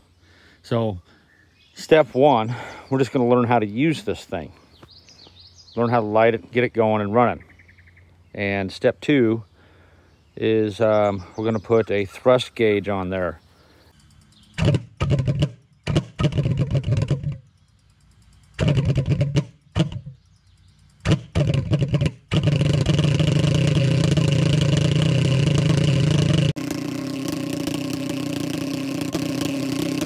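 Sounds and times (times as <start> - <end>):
pulse jet engine sputtering and popping: 14.4 - 17.6, 18.3 - 30.0.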